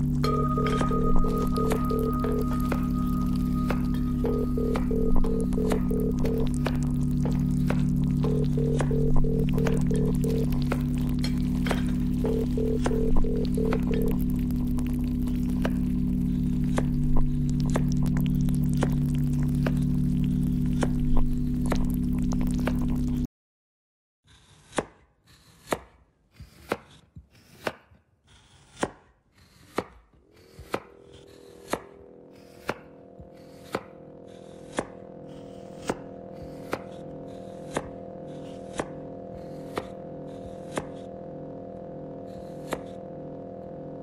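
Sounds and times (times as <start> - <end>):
sawtooth synth drone: 0.0 - 23.3, 30.3 - 44.0
sampled knife chopping sound: 24.4 - 41.1, 42.6 - 43.0.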